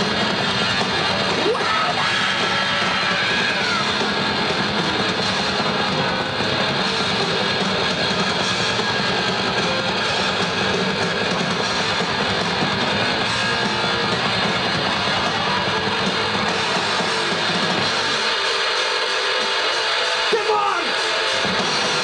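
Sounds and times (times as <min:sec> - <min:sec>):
heavy metal band playing live: 0:00.0 - 0:22.0.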